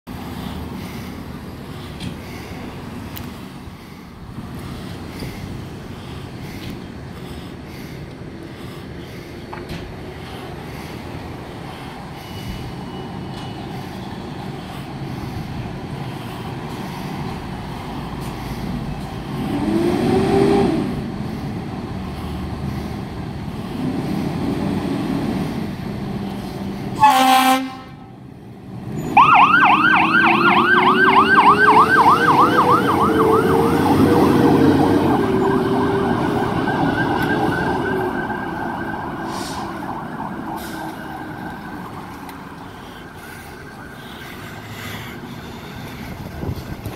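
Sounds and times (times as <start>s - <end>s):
air horn blast: 27.0s - 28.1s
low siren tone wailing: 29.0s - 44.0s
electronic siren yelping: 29.1s - 42.4s.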